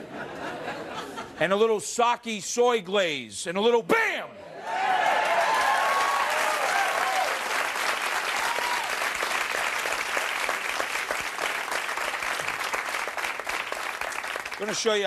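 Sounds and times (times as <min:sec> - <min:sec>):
studio audience applauding: 0:04.6 - 0:15.0.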